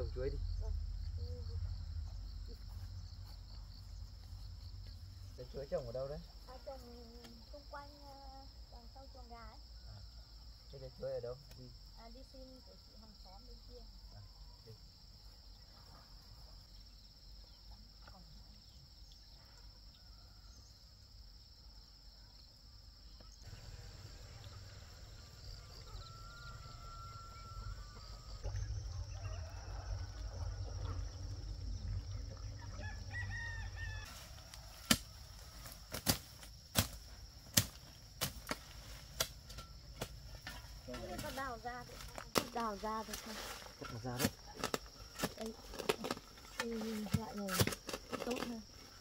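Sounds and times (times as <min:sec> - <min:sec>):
insect chirring: 0:00.0 - 0:49.0
rooster crowing: 0:24.5 - 0:31.8, 0:32.4 - 0:35.7.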